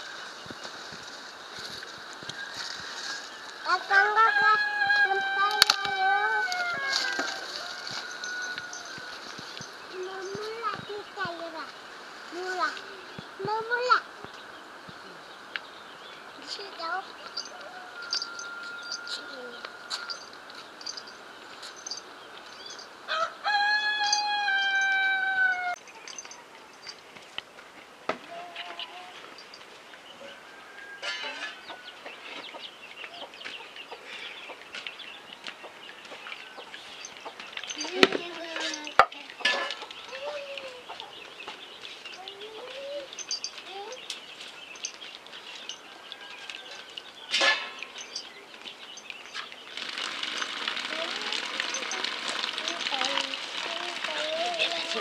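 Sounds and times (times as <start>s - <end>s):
rooster crowing: 2.3s - 9.5s, 17.4s - 20.3s, 23.1s - 25.8s, 30.2s - 32.3s, 45.8s - 47.4s
small birds chirping: 7.6s - 23.2s, 24.2s - 27.6s, 28.2s - 55.0s
chickens clucking: 31.0s - 43.9s.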